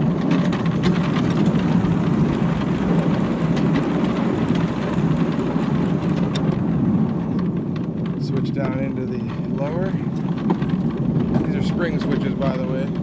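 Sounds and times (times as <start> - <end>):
miniature train wheels rumbling: 0.0 - 13.0.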